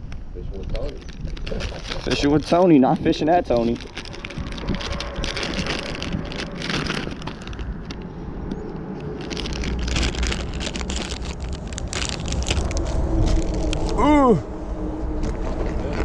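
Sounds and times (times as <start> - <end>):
wind rumbling on microphone: 0.0 - 16.0
plastic bags crinkling: 0.7 - 8.1, 9.0 - 14.0.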